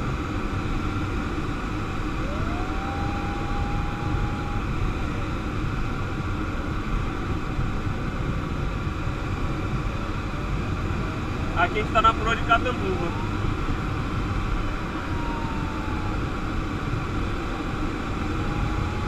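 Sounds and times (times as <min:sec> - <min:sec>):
airflow rushing in cockpit: 0:00.0 - 0:19.0
thin tone rising in pitch: 0:02.2 - 0:04.8, 0:14.6 - 0:19.0.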